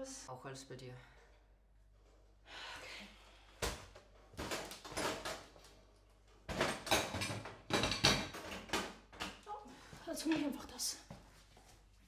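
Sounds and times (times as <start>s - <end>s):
drawers and cupboards opening and shutting: 6.4s - 9.3s.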